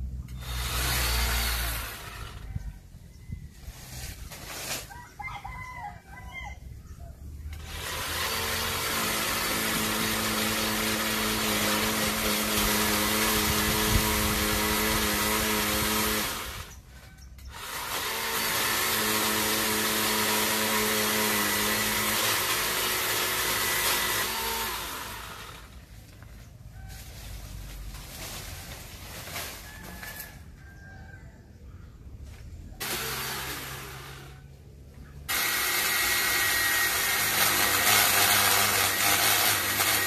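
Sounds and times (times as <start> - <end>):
electric chainsaw whining: 0.3 - 2.5, 7.5 - 16.8, 17.5 - 25.9, 32.8 - 34.6, 35.3 - 40.0.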